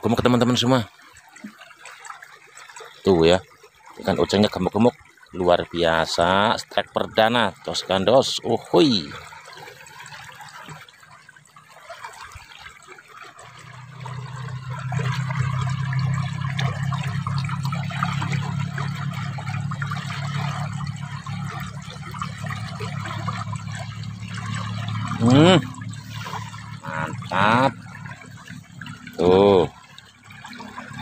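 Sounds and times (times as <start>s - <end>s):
water trickling in a ditch: 0.0s - 31.0s
steady low hum: 13.7s - 29.7s.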